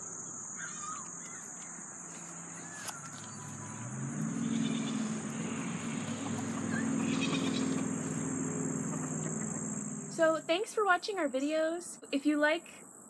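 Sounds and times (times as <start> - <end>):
faint bird chirps: 0.0 - 10.4
low engine-like drone: 0.0 - 10.8
crickets trilling: 0.0 - 13.0.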